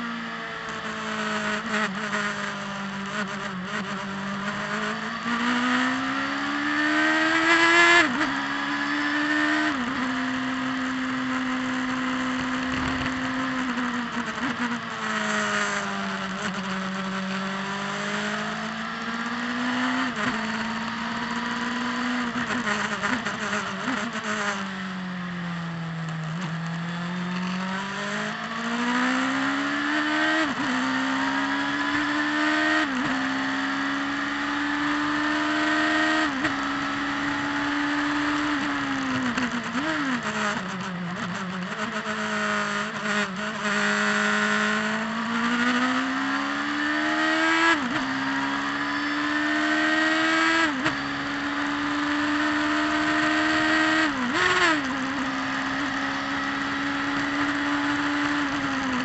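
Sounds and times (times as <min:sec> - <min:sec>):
sports car engine accelerating: 0:00.0 - 0:59.0.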